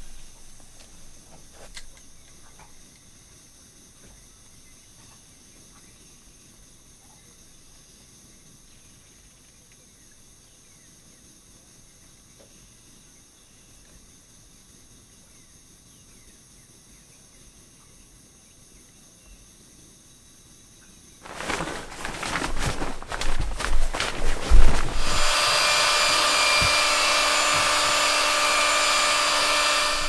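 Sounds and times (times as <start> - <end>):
outdoor hiss: 0.0 - 10.7, 21.1 - 30.0
air mattress crinkly rustling: 21.2 - 28.2.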